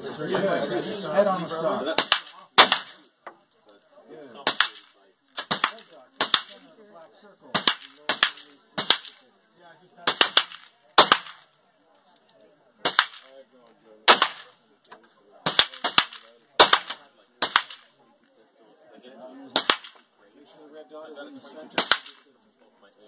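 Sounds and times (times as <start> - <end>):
sharp gunshots: 1.9 - 3.1, 4.4 - 6.6, 7.5 - 9.2, 10.0 - 11.5, 12.8 - 13.3, 14.0 - 14.6, 15.4 - 17.9, 19.5 - 20.0, 21.8 - 22.2.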